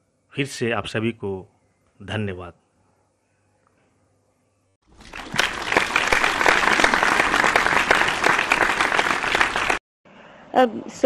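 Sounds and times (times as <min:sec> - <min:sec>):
audience applause: 0:04.9 - 0:09.8.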